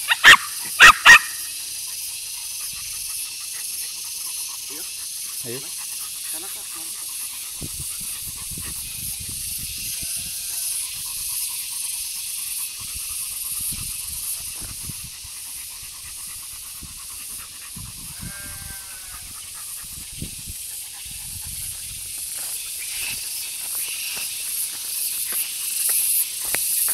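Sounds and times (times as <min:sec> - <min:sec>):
dog panting: 0:01.5 - 0:09.6, 0:10.7 - 0:18.2, 0:19.1 - 0:26.9.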